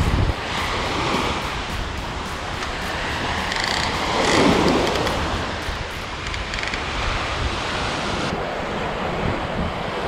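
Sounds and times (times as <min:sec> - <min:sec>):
ocean surf washing onto beach: 0:00.0 - 0:10.0
wind buffeting microphone: 0:00.0 - 0:10.0.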